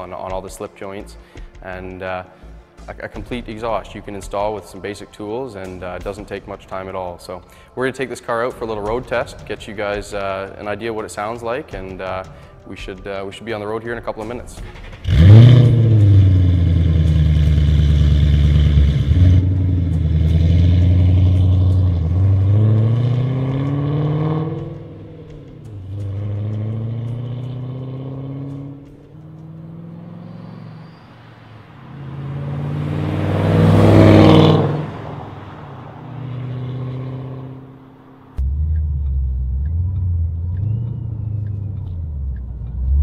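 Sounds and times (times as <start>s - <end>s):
car engine accelerating hard: 14.8s - 43.0s
car driving past: 15.0s - 43.0s.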